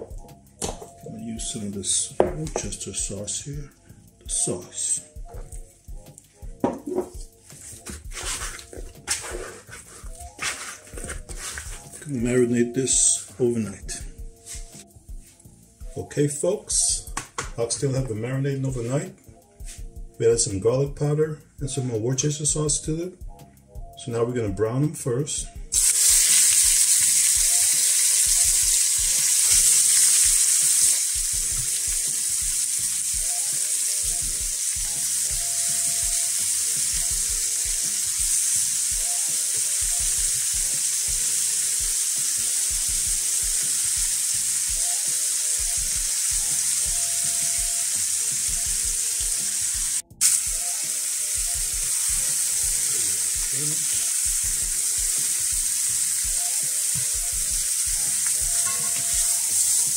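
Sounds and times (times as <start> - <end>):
meat sizzling in hot oil: 25.7 - 59.9.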